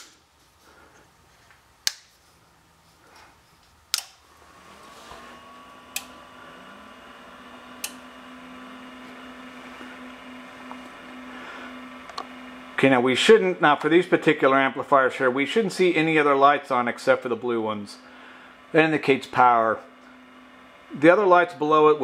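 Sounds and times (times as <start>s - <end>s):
amplifier hum: 0.0s - 22.0s
cooling fan noise: 0.0s - 22.0s
power switch clicks: 3.9s - 4.2s, 5.9s - 6.2s, 7.8s - 8.0s.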